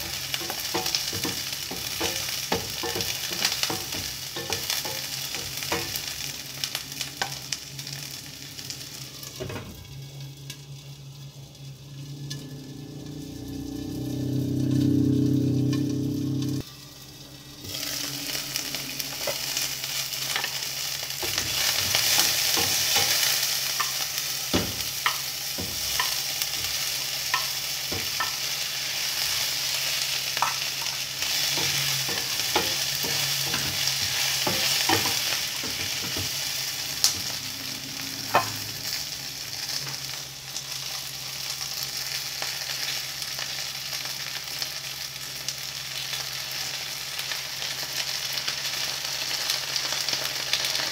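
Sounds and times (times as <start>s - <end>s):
eggplant sizzling in a pot: 0.0s - 50.9s
wooden spatula knocking a pot: 0.4s - 6.0s, 24.5s - 26.2s.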